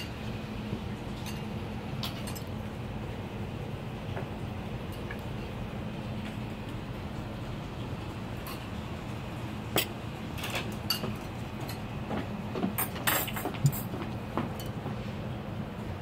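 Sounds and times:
steady low hum: 0.0s - 16.0s
tableware clinking: 9.7s - 11.8s, 12.8s - 13.9s.

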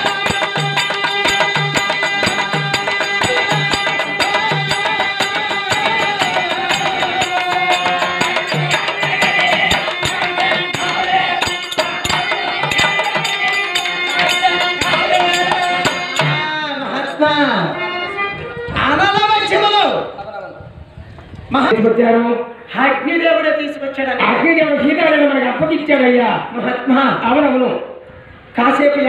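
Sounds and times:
fast clicking percussion: 0.0s - 16.6s
wavering melody: 0.0s - 18.8s.

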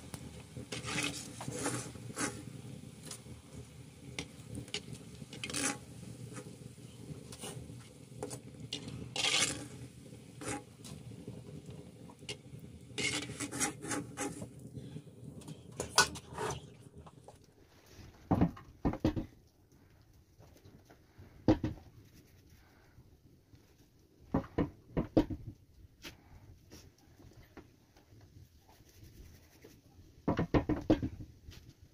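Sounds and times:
metal skimmer scraping wok: 0.0s - 11.4s, 12.1s - 14.7s, 15.4s - 17.2s
dough knocking on wooden board: 30.3s - 31.2s.

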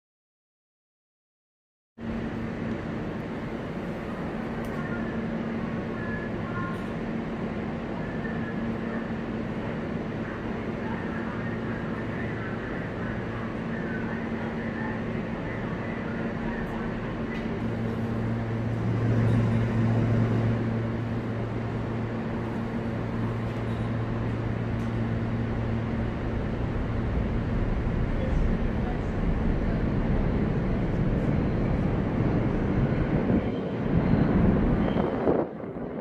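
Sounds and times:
rumbling station noise: 2.0s - 36.0s
train electrical hum: 2.0s - 36.0s.

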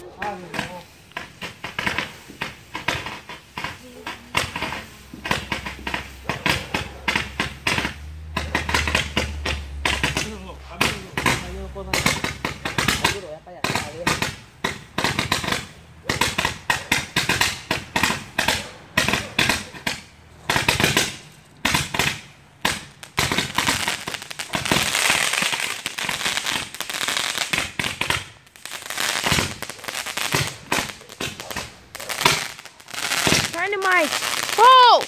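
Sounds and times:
firework crackling pops: 0.0s - 35.0s
firework sparks hissing: 0.0s - 35.0s.

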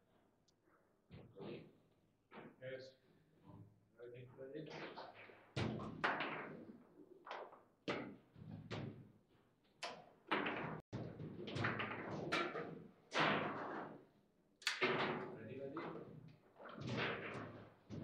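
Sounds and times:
table football knocks and clacks: 4.8s - 18.0s.

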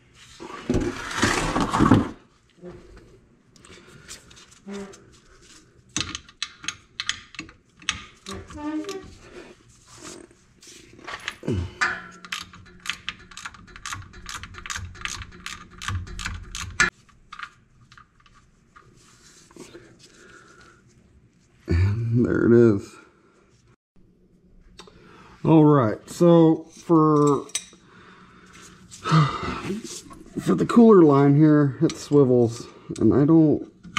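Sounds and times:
ratchet clicking: 12.2s - 16.9s.

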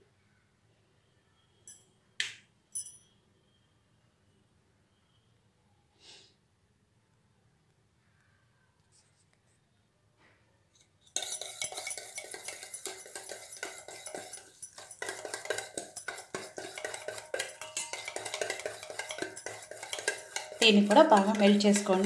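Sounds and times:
whisk clinking against steel bowl: 11.2s - 22.0s.

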